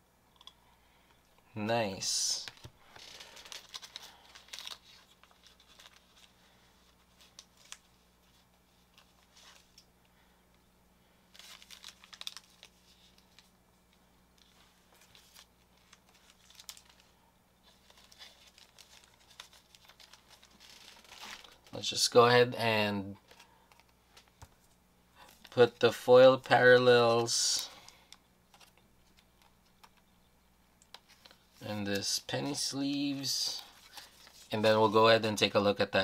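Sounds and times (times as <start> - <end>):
cards and plastic rustling: 1.8 - 9.9, 11.3 - 30.1, 30.8 - 36.0.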